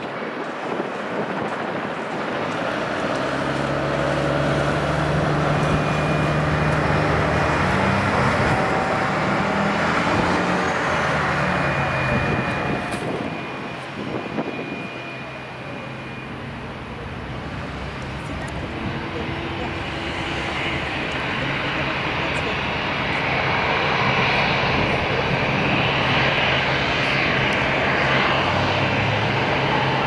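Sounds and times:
jet engines running low power: 0.0s - 30.0s.

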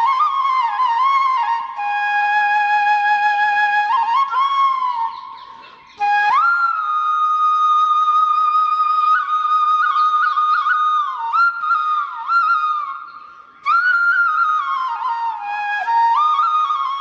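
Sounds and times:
solo flute melody: 0.0s - 17.0s.

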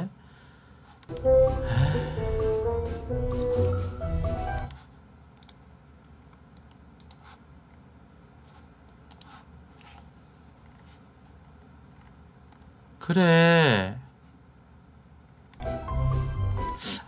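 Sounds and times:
background music: 1.1s - 4.7s, 15.6s - 17.0s
computer mouse clicks: 4.6s - 7.8s, 8.8s - 10.0s.

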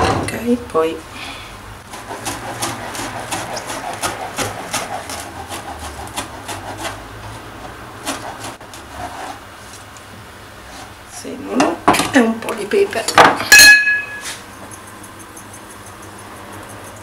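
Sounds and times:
knife chopping on cutting board: 1.9s - 7.0s.

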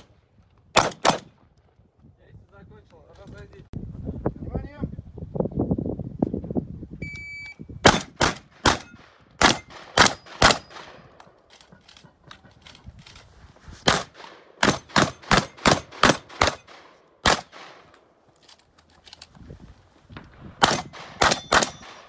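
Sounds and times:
shotgun shots: 0.7s - 1.3s, 7.8s - 11.2s, 13.9s - 17.9s, 20.5s - 22.0s
shot timer beep: 7.0s - 7.7s.

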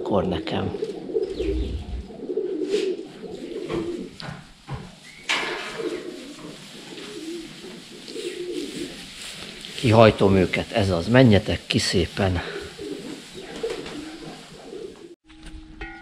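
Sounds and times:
pigeons cooing: 0.0s - 9.8s, 12.4s - 15.2s.

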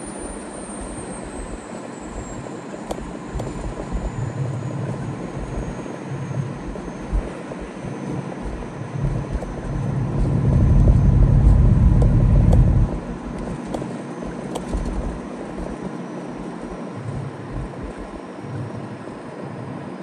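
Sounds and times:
truck engine and road noise: 0.0s - 20.0s
light ticks: 2.9s - 3.7s.

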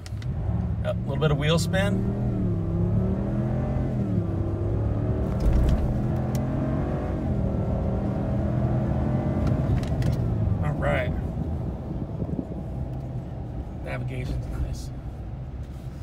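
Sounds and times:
truck engine accelerating hard: 0.3s - 12.6s.

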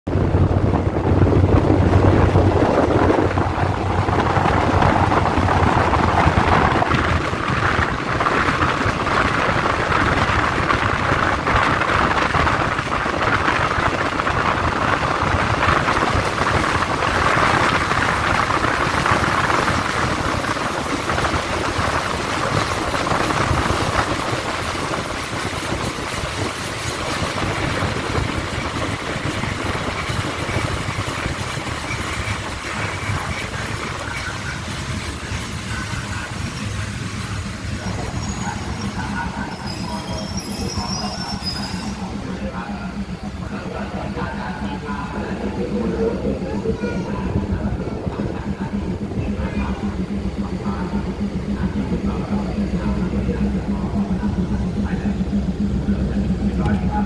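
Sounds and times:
rushing air: 0.1s - 34.6s
train wheels rolling on rails: 0.1s - 57.0s.

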